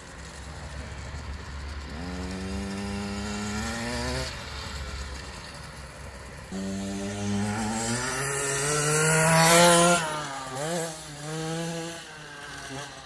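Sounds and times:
dirt bike engine revving: 1.8s - 5.0s, 6.5s - 13.0s.

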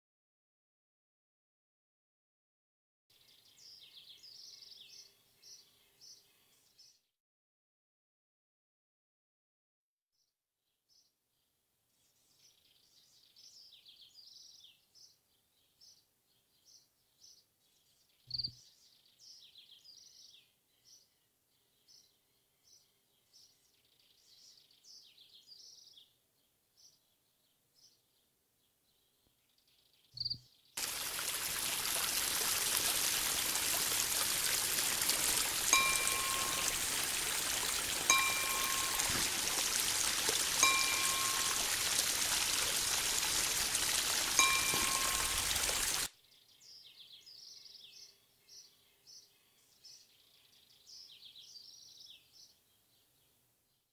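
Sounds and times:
rushing stream water: 30.8s - 46.1s
high bird chirps: 34.3s - 43.2s, 44.3s - 46.1s
high chime note: 35.7s - 37.0s, 38.1s - 39.4s, 40.6s - 41.8s, 44.4s - 45.6s.

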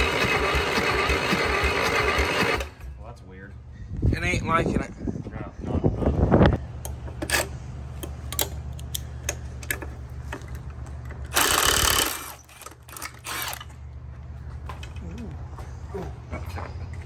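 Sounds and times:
diesel engine cranking: 0.0s - 2.9s, 6.8s - 14.0s.

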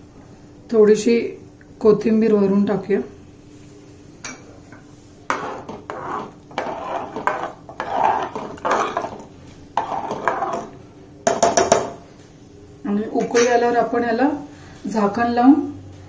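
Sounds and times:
spoon scraping a metal pot: 5.3s - 11.7s.

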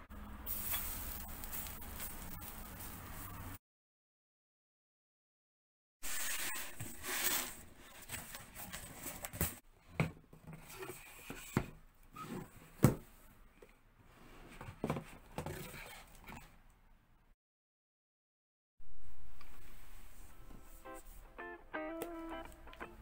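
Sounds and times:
cardboard rustling: 6.1s - 9.6s.

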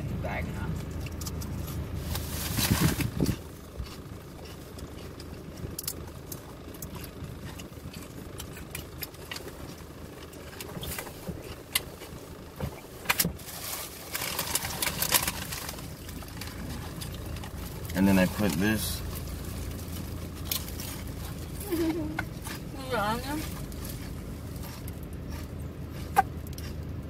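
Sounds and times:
low hum inside a car: 0.0s - 27.0s
sharp plastic crackles: 0.9s - 22.6s
plastic bag crinkling: 13.4s - 21.8s.

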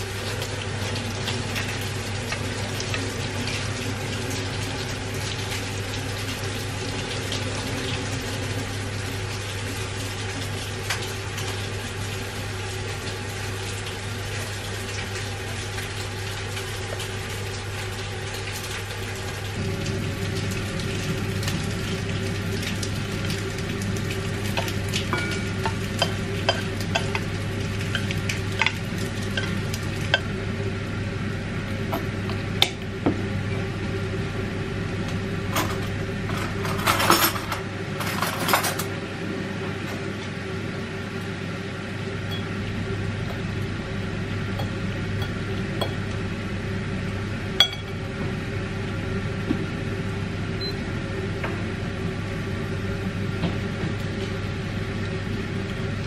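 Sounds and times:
steady low hum: 19.5s - 56.0s.

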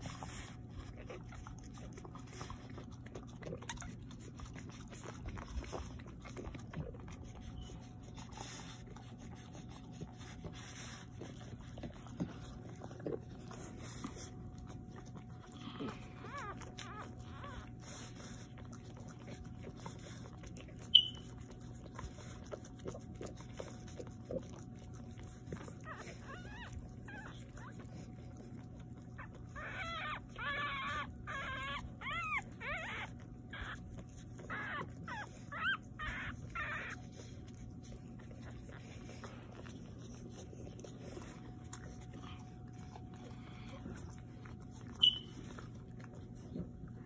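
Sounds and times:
steady low hum: 0.0s - 47.0s
puppies squeaking and whimpering: 7.0s - 14.4s, 15.6s - 18.6s, 20.7s - 21.6s, 25.8s - 46.4s.

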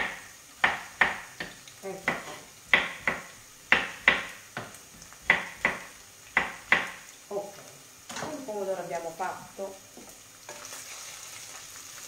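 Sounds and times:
knife chopping on wooden board: 0.0s - 7.0s.

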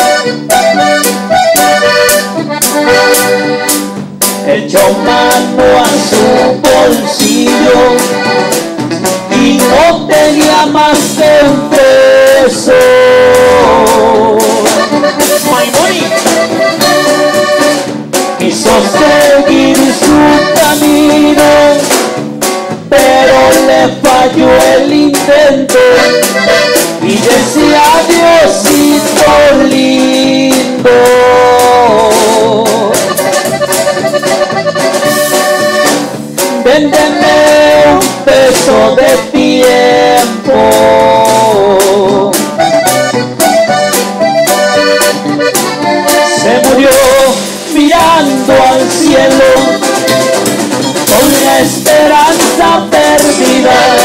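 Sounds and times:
accordion melody: 0.0s - 54.0s
drum kit: 0.0s - 54.0s
keyboard: 0.0s - 54.0s
man singing into a microphone: 4.4s - 8.6s, 9.3s - 16.9s, 18.4s - 22.0s, 22.9s - 33.5s, 36.5s - 42.6s, 45.4s - 50.4s, 51.0s - 54.0s.

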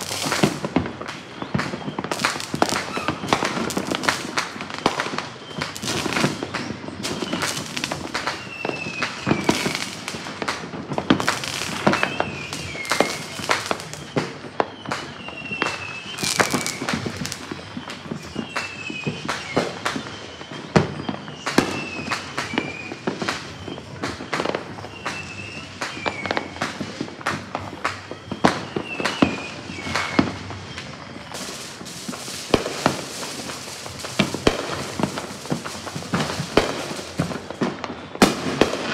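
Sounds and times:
firework bangs and pops: 0.0s - 38.9s
falling whistle-like tone: 5.2s - 10.0s, 11.7s - 26.9s, 28.0s - 33.7s.

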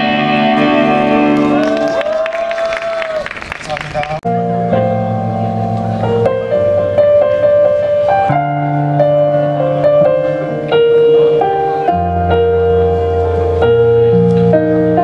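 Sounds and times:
keyboard playing slow ballad: 0.0s - 2.6s, 4.2s - 15.0s.

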